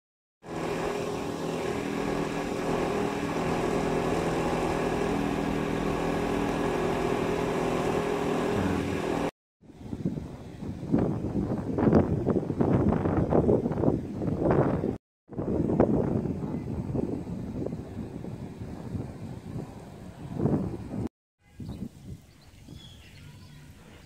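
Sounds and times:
machinery humming: 0:00.4 - 0:09.3.

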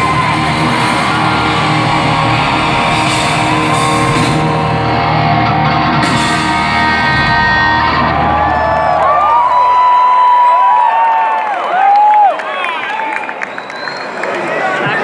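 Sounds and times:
hard rock band playing: 0:00.0 - 0:09.2
electric guitar: 0:00.0 - 0:09.6
drums: 0:00.0 - 0:10.1.

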